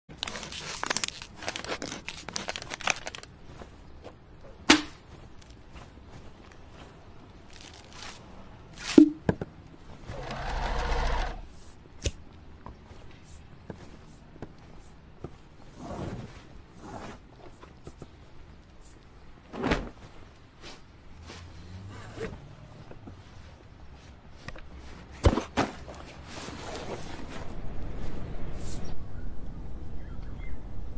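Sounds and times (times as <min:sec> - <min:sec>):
plastic bottle crinkling: 0:00.1 - 0:03.4, 0:07.5 - 0:08.2.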